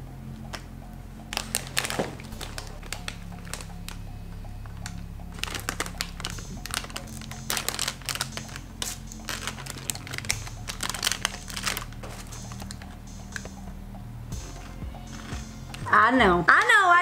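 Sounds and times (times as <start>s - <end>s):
plastic cereal bag crinkling: 1.4s - 3.7s, 5.3s - 13.0s.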